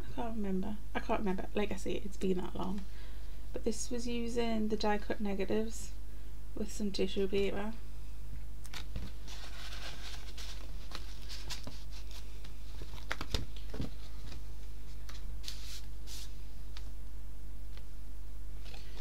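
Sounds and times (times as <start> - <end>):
steady low hum: 0.0 - 19.0
pages rustling and flapping: 8.7 - 17.0, 18.6 - 19.0.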